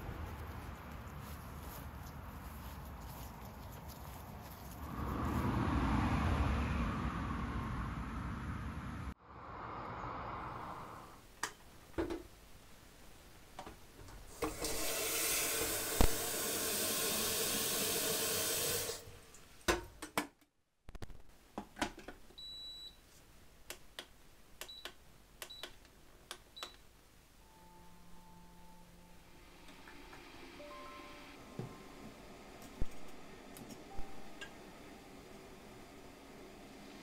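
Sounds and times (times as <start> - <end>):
tap water running into kettle: 14.3 - 19.1
kettle beeps: 22.4 - 23.0.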